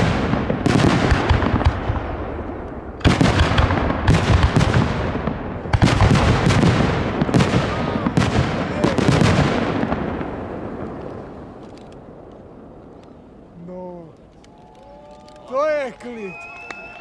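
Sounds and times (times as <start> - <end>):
crackling pops: 10.7 - 16.2.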